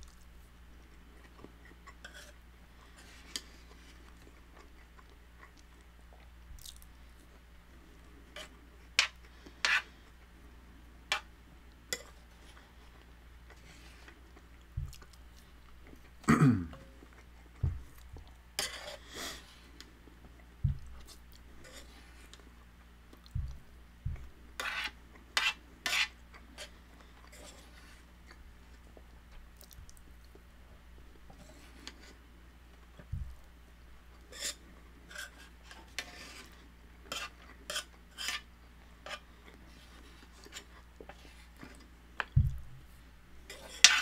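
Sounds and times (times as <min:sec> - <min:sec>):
chewing: 0:00.0 - 0:07.4, 0:26.3 - 0:30.4
spoon scraping metal pan: 0:08.4 - 0:09.9, 0:24.6 - 0:26.7, 0:34.3 - 0:39.2, 0:43.5 - 0:44.0.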